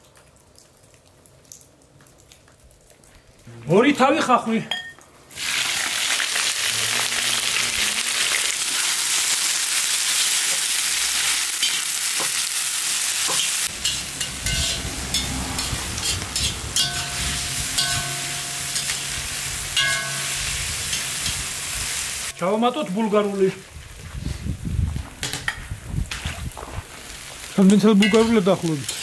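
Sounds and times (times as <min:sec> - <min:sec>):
onions sizzling in oil: 0:05.3 - 0:22.4, 0:26.9 - 0:29.0
spoon scraping and clinking: 0:13.3 - 0:19.0.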